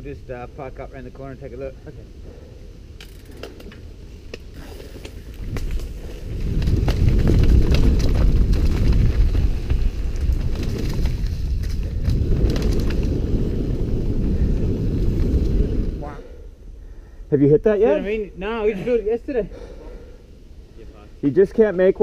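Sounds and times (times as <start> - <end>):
wind rumble on microphone: 2.0 - 16.7
bike clicks and rattles: 3.0 - 15.7
tyres on loose dirt: 3.0 - 16.0.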